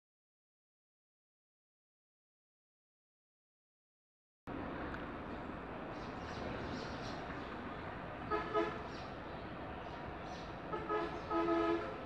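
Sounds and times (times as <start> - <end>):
vehicle horn honking: 8.3 - 8.8, 10.7 - 12.0.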